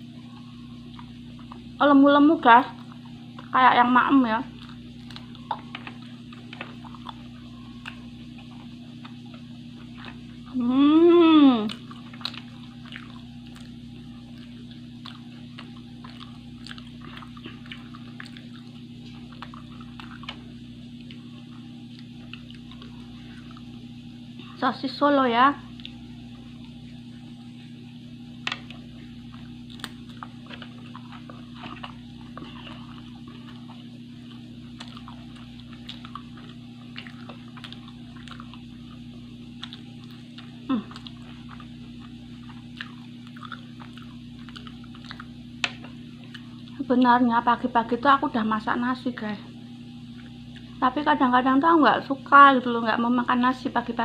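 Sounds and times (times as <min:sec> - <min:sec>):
steady low hum: 0:00.0 - 0:54.0
person chewing: 0:00.2 - 0:01.8, 0:04.5 - 0:24.0, 0:28.5 - 0:46.9, 0:50.1 - 0:50.8
small clicks and smacks: 0:29.4 - 0:32.5.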